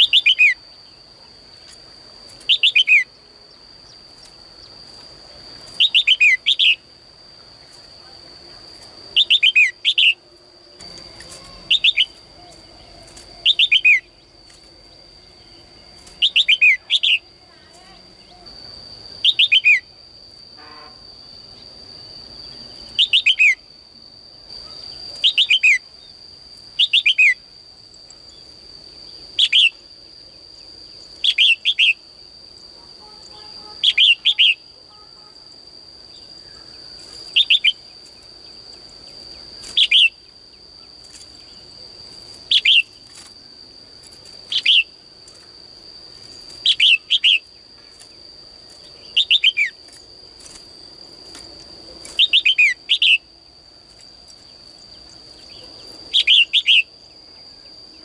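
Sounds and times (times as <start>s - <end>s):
bird chirping: 0.0s - 1.0s, 2.4s - 3.1s, 5.7s - 6.8s, 9.2s - 14.4s, 15.4s - 17.3s, 19.2s - 19.9s, 22.5s - 23.6s, 33.2s - 34.6s, 54.9s - 56.9s
thin high whine: 0.0s - 58.0s.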